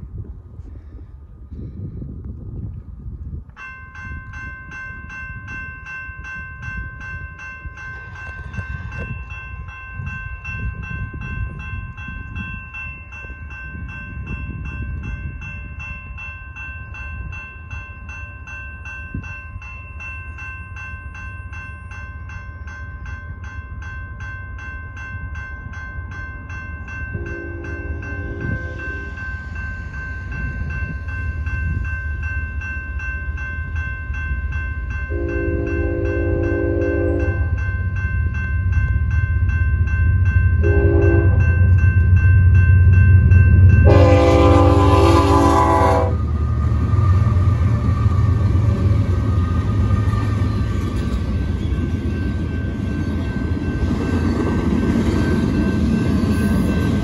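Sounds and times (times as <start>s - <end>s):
railroad crossing bell clanging: 3.2s - 57.0s
locomotive horn: 27.2s - 29.0s, 35.1s - 37.5s, 40.6s - 41.4s, 43.8s - 46.2s.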